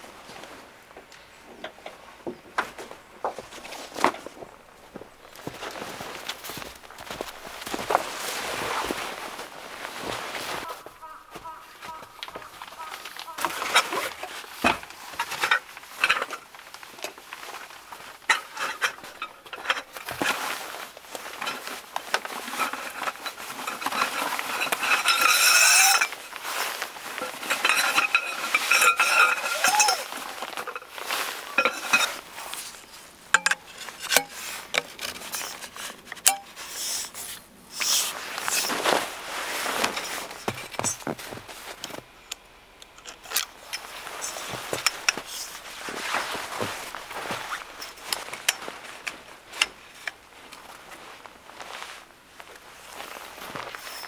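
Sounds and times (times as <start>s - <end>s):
nylon fabric rustling: 3.4s - 42.2s, 43.2s - 54.0s
poles clinking and knocking: 27.2s - 32.7s, 33.3s - 36.6s, 39.8s - 50.2s.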